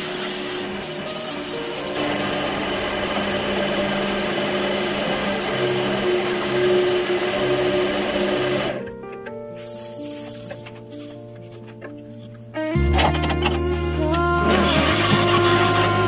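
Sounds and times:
sandpaper rubbing on wood: 0:00.0 - 0:02.2, 0:09.6 - 0:11.8
wood lathe whining: 0:00.0 - 0:16.0.

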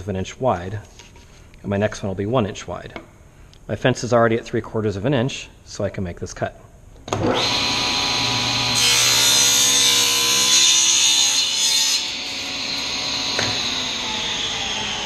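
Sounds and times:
table saw motor hum: 0:07.1 - 0:15.0.

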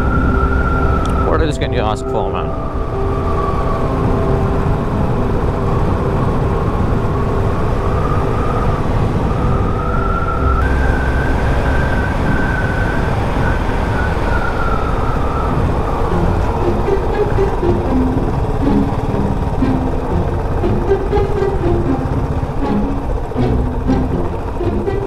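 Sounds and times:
whistle-like tone: 0:00.0 - 0:04.5, 0:07.3 - 0:18.9
wind noise: 0:00.0 - 0:25.0.

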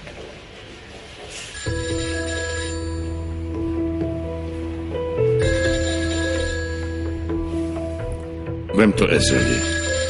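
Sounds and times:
phone ringtone: 0:01.5 - 0:03.4, 0:05.3 - 0:07.2, 0:09.2 - 0:10.0.

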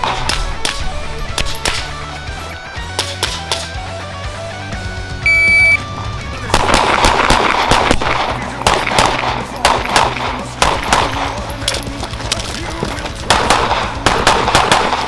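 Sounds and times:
shot timer beep: 0:05.2 - 0:05.8
pistol shots with echo: 0:06.5 - 0:12.5, 0:13.2 - 0:15.0.

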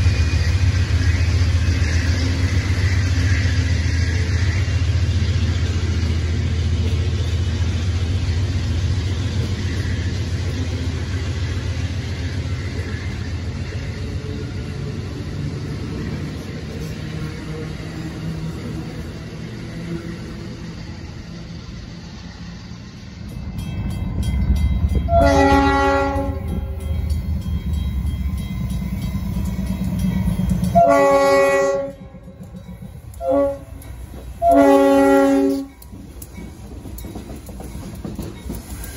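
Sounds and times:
diesel locomotive rumbling: 0:00.0 - 0:38.9
passenger train rumbling past: 0:00.0 - 0:38.9
train horn blasts: 0:25.1 - 0:26.8, 0:30.6 - 0:32.3, 0:33.1 - 0:35.8.

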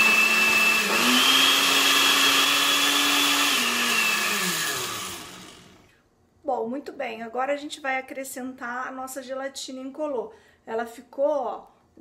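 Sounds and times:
electric blender running: 0:00.0 - 0:05.9.

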